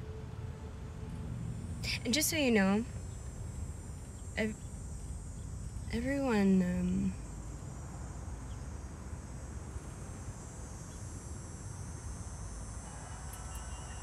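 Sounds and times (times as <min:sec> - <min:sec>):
low traffic rumble: 0:00.0 - 0:14.0
high-pitched insect chirring: 0:08.3 - 0:14.0.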